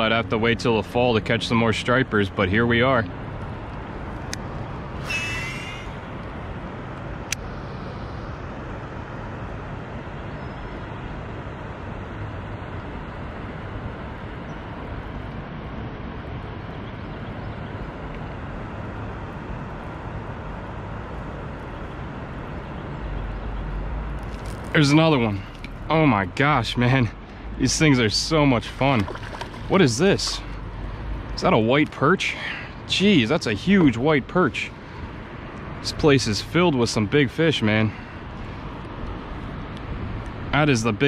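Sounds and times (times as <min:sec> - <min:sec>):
high chirp: 0:05.0 - 0:06.0.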